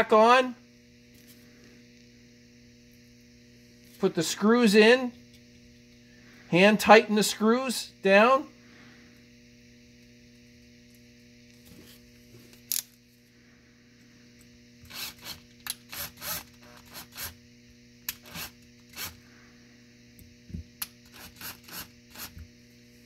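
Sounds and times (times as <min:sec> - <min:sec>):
steady mains hum: 0:00.0 - 0:23.0
drill-driver turning screws: 0:14.8 - 0:17.4.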